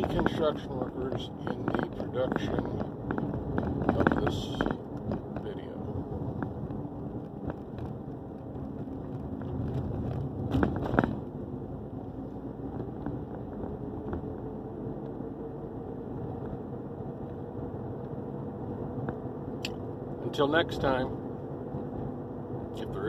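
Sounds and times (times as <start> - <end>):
vehicle cabin road rumble: 0.0 - 23.0
sharp knocks clatter: 9.7 - 11.3.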